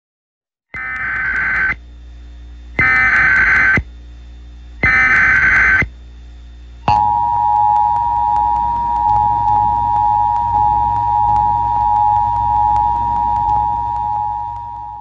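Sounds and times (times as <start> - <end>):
screeching digital data tones: 0.8 - 1.8, 2.8 - 3.8, 4.8 - 5.9, 6.9 - 15.0.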